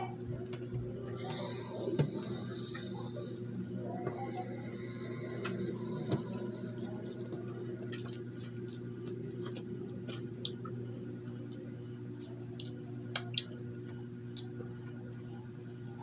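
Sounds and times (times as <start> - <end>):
low hum: 0.0 - 16.0
fingers being licked: 12.5 - 13.6
wet mouth clicks and squishes: 12.5 - 13.6.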